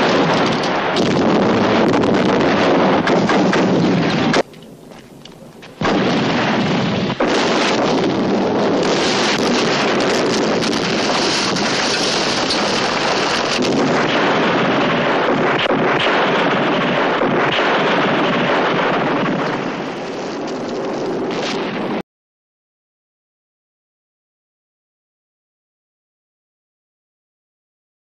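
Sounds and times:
explosions and rumbling: 0.0s - 22.0s.

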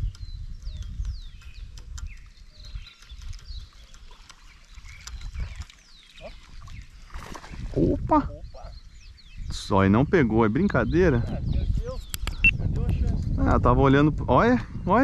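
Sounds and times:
wind rumble on microphone: 0.0s - 15.0s
sharp clicks: 12.1s - 13.0s.

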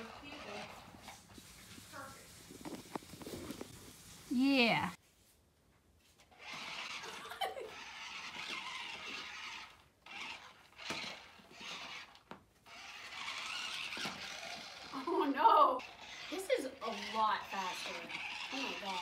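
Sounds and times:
toy car electric motors whining: 0.0s - 1.3s, 6.3s - 19.0s.

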